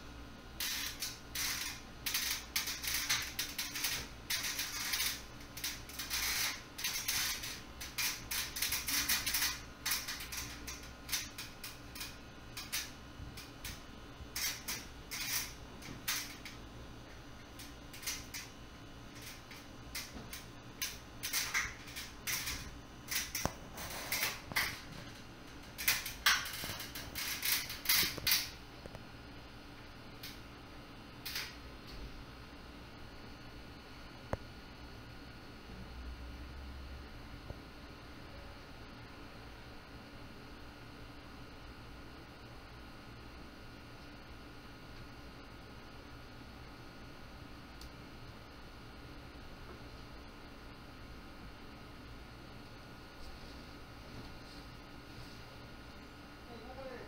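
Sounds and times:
steady low hum: 0.0 - 57.0
rustling and scraping in ceiling: 0.5 - 29.1, 52.6 - 56.7.

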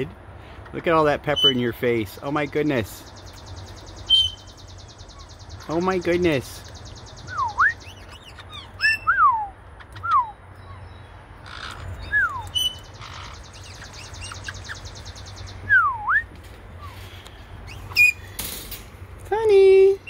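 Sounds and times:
parrots whistling: 1.3 - 1.7, 4.0 - 5.3, 7.2 - 15.0, 17.7 - 18.3.

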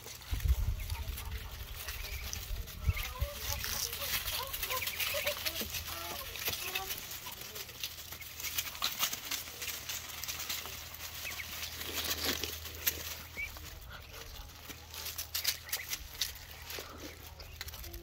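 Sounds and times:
ducklings pecking and rustling: 0.0 - 18.0
duckling chirps: 0.5 - 7.4, 11.0 - 17.8.

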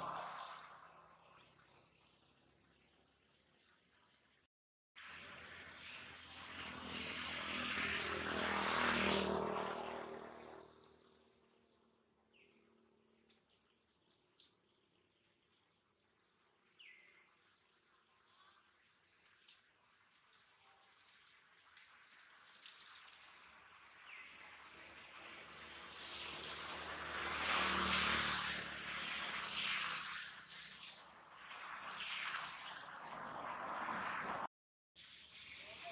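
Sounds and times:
engine passing: 0.0 - 1.2, 5.0 - 11.1, 23.7 - 34.5
insect chorus droning: 0.0 - 35.9.

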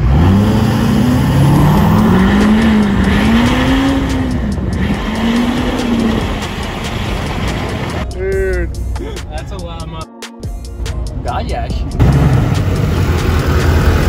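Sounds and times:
diesel truck engine accelerating: 0.0 - 8.1, 11.8 - 14.0.

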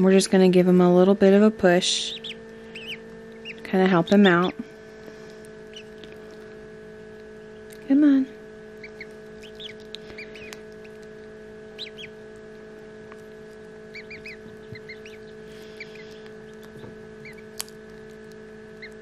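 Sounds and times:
ducklings peeping: 0.0 - 19.0
electrical hum: 0.0 - 19.0.

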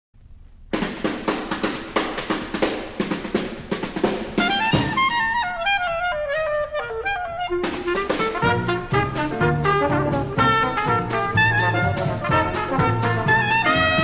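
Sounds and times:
drum and cymbal hits: 0.7 - 5.2, 7.6 - 14.0
big band accompaniment: 0.8 - 14.0
solo wind instrument melody: 4.4 - 14.0.

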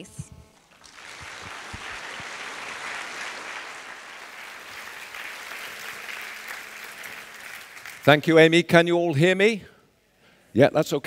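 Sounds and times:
audience applauding: 0.6 - 8.4.

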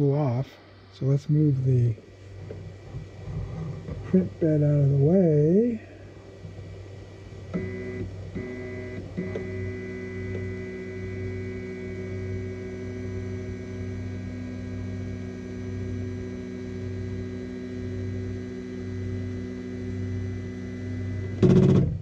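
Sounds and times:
pulsing low hum: 0.0 - 22.0
stepper motor humming: 6.6 - 22.0.

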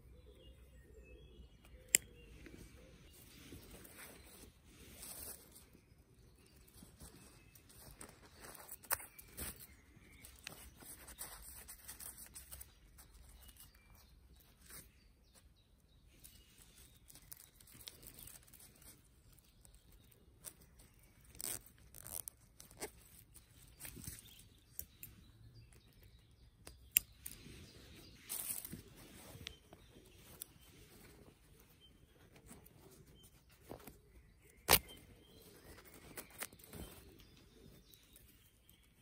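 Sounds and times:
small scissors snipping: 1.6 - 2.2, 26.6 - 27.4, 34.6 - 35.0
fabric rustling and crinkling: 2.4 - 15.0, 27.3 - 38.5.

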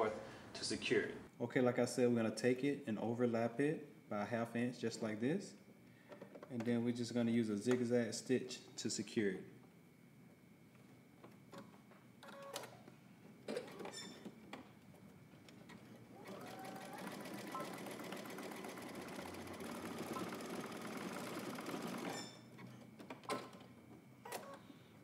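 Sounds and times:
sewing machine stitching: 16.2 - 22.4.

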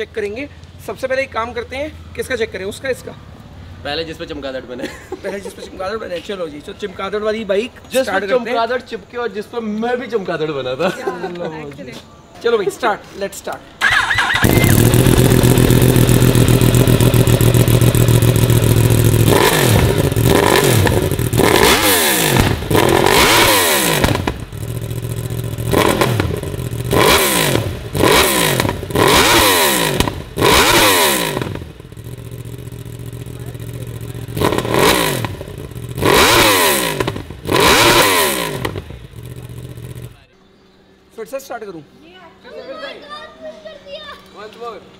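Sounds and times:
motorcycle engine revving: 13.8 - 40.3.

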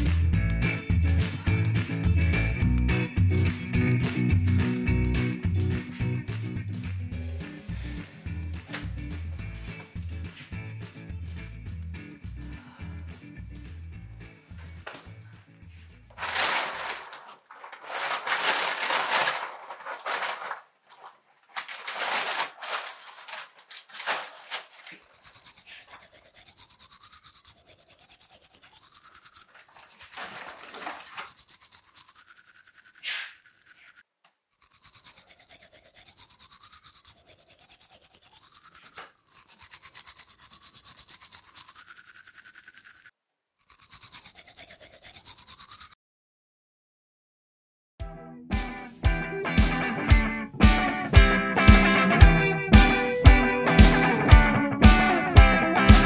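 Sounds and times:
toothbrush scrubbing: 0.0 - 14.3, 15.8 - 46.0
electric toothbrush buzzing: 24.8 - 30.2, 31.2 - 46.0.

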